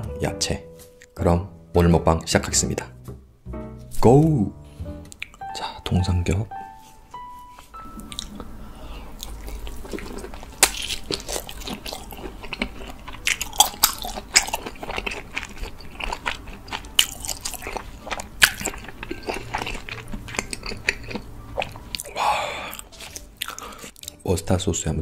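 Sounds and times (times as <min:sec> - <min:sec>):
wet chewing: 0:08.0 - 0:08.5, 0:09.1 - 0:24.2
crunchy crackling bites: 0:09.2 - 0:24.2.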